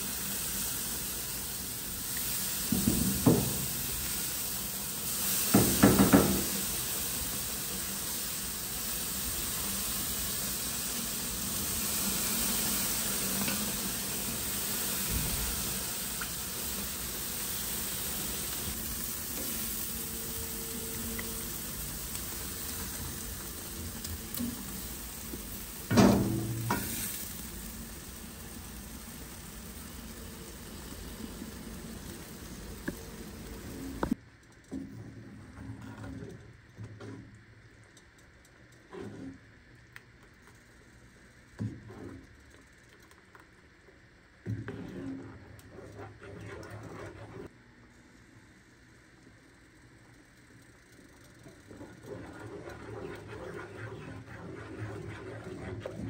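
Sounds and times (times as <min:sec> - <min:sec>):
food sizzling in a pan: 0:00.0 - 0:34.2
utensil knocking: 0:05.5 - 0:06.5.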